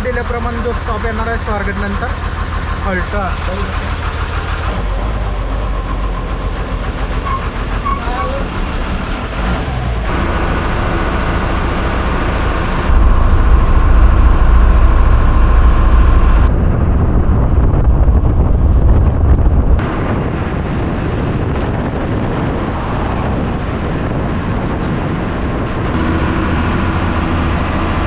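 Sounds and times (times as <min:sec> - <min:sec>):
bus engine and road noise: 0:00.0 - 0:28.0
deep low rumble: 0:09.1 - 0:28.0.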